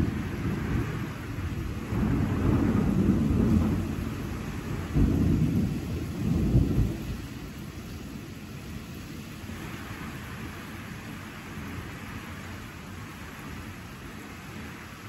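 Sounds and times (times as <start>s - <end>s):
thunder rumbling: 0.0s - 8.3s
steady rain: 0.0s - 15.0s.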